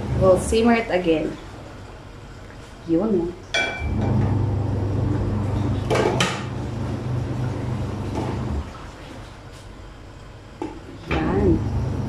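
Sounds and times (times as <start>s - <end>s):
low hum: 3.7s - 8.8s.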